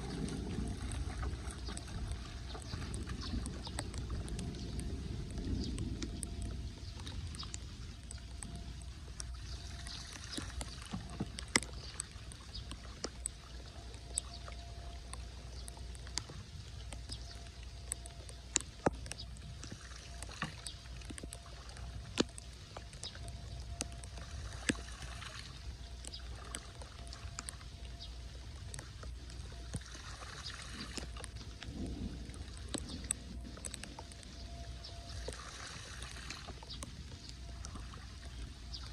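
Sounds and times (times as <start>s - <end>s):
low rumble: 0.0s - 18.5s
water splashing and sloshing: 0.0s - 38.9s
sharp clicks: 0.9s - 24.8s, 31.0s - 35.4s.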